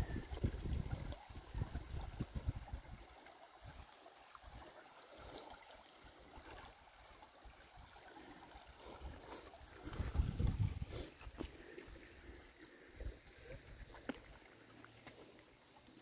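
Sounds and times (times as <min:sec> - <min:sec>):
wind rumbling on microphone: 0:00.0 - 0:03.1, 0:09.8 - 0:11.1
river trickling over rocks: 0:00.0 - 0:16.0.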